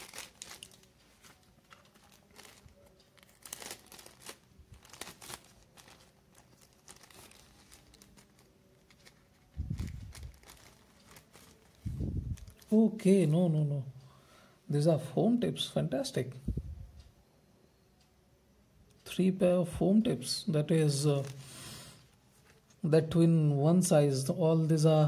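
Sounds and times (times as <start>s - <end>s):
paper pouch crinkling and tearing: 0.0s - 12.7s.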